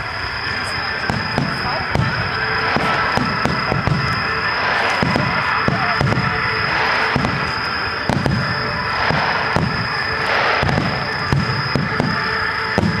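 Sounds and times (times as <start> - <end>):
fireworks crackling: 0.0 - 13.0
fireworks shells bursting: 0.8 - 13.0.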